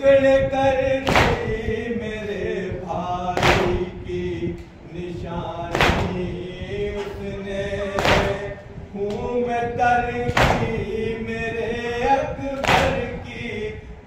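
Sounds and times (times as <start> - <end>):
man chanting into a microphone: 0.0 - 14.0
chest beating thumps: 1.0 - 1.8, 3.4 - 4.4, 5.7 - 7.1, 7.9 - 8.8, 10.3 - 11.0.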